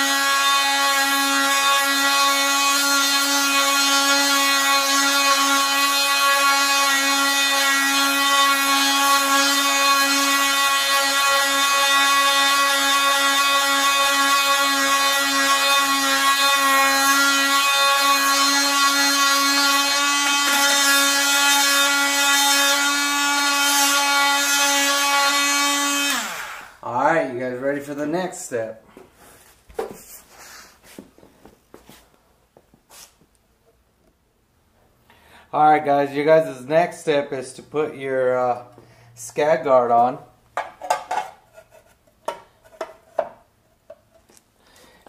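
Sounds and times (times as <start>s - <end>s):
drill motor whine: 17.3s - 26.8s.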